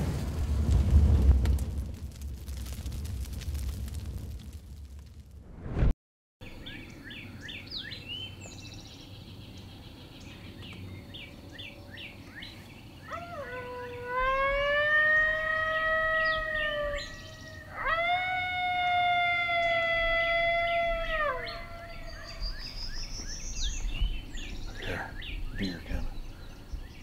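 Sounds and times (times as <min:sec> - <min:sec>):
songbirds chirping: 0:06.4 - 0:27.0
electronic coyote howls: 0:13.1 - 0:22.4.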